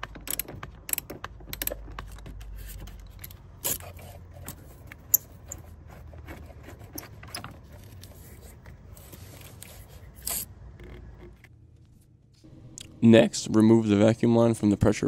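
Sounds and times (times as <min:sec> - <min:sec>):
hand scraping battery terminal: 0:00.0 - 0:11.5.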